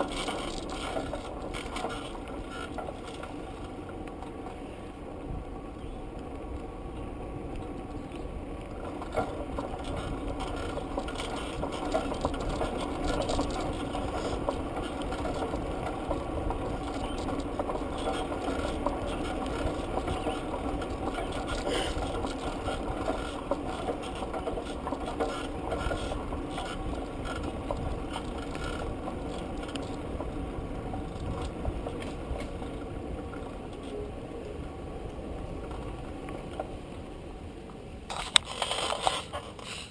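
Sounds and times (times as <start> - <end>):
bicycle tyres rumbling on pavement: 0.0 - 39.9
bike rattling: 0.0 - 39.9
small clicks and knocks: 7.5 - 30.4.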